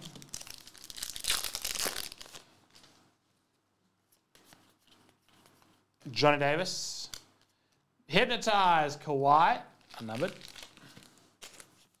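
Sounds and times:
foil wrapper tearing: 0:00.0 - 0:02.5, 0:09.8 - 0:12.0.

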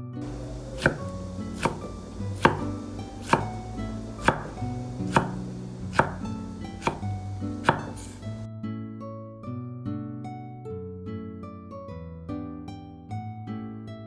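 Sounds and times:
soft background music: 0:00.0 - 0:14.0
knife chopping on wooden board: 0:00.2 - 0:08.4.

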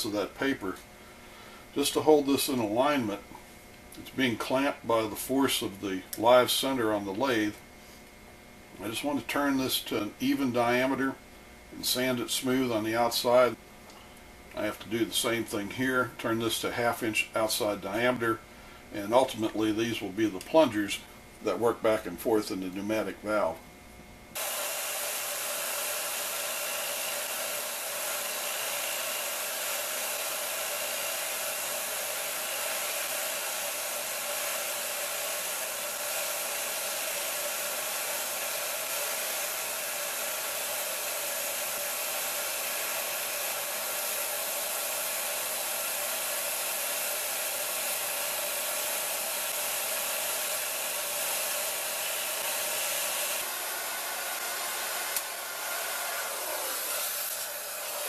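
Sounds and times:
lathe motor whirring: 0:24.4 - 0:58.0.

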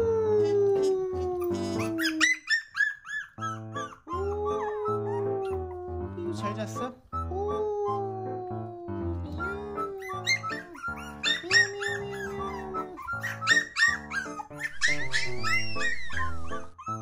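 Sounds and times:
puppy howling and whining: 0:00.0 - 0:06.2, 0:07.2 - 0:17.0
cheerful background music: 0:03.4 - 0:17.0.

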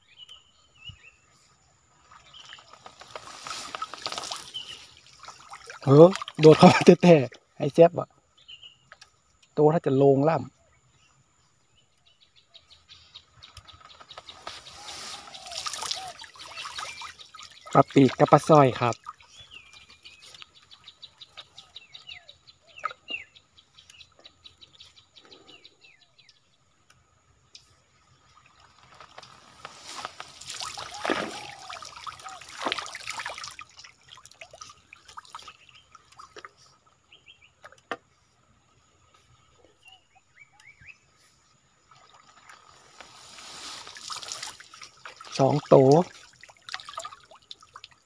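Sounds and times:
small birds chirping: 0:00.0 - 0:48.0
water splashing and trickling: 0:01.4 - 0:07.9, 0:13.3 - 0:24.7, 0:27.5 - 0:39.3, 0:41.6 - 0:48.0.

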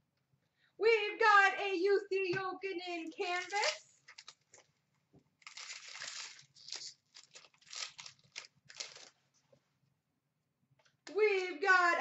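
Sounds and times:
foil card pack crinkling and tearing: 0:03.3 - 0:04.6, 0:05.4 - 0:09.2.

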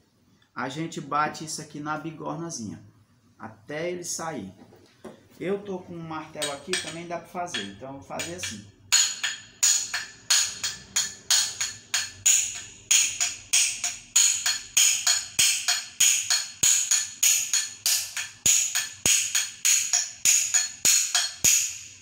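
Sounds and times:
hammer clinking on metal: 0:06.4 - 0:21.8.

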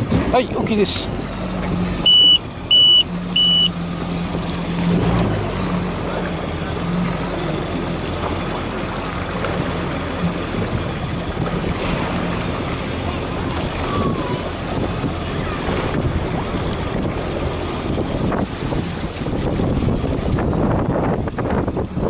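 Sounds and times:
water noise: 0:00.0 - 0:22.0
watercraft engine idling: 0:00.0 - 0:22.0
high electronic beeps: 0:02.0 - 0:03.7
wind noise: 0:10.4 - 0:22.0.

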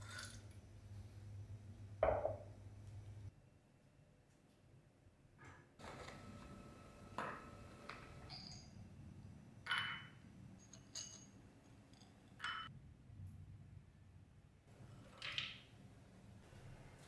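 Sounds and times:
nuts clinking into glass bowl: 0:08.3 - 0:08.8, 0:09.7 - 0:12.7.

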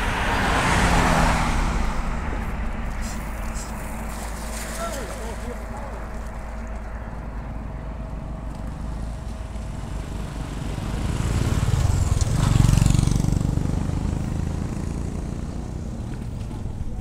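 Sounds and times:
motorcycle passing by: 0:00.0 - 0:02.5, 0:07.5 - 0:17.0.

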